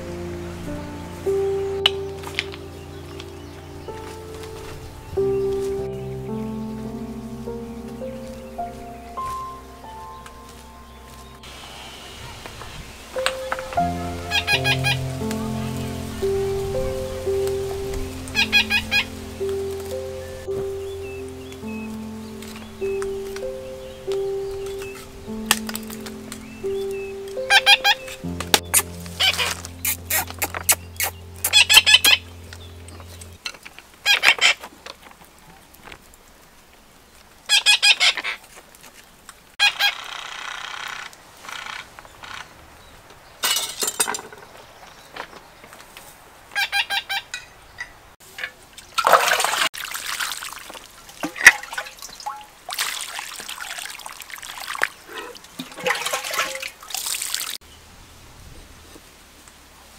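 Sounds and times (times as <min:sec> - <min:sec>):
poultry calling: 0:13.2 - 0:16.6, 0:18.3 - 0:25.0
water pouring and splashing: 0:48.2 - 0:57.6.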